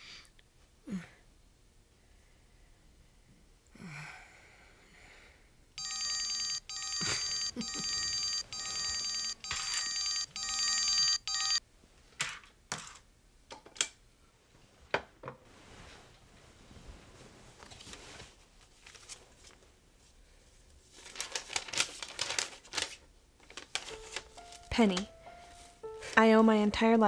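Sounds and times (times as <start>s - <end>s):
telephone trilling ring: 5.8s - 11.6s.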